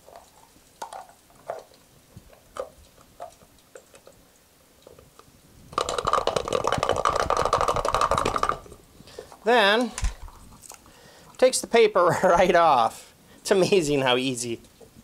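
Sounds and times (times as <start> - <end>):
garlic rattling in shaker cup: 5.7 - 8.8.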